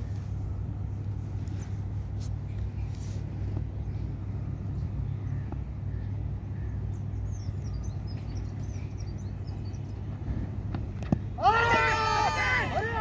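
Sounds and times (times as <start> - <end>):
steady low rumble: 0.0 - 13.0
small birds chirping: 2.5 - 10.4.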